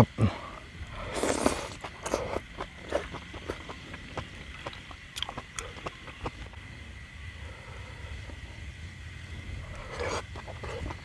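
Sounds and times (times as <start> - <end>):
noisy slurp: 0.4 - 6.6, 9.4 - 11.0
man chewing with wet smacks: 0.8 - 6.6, 9.5 - 11.0.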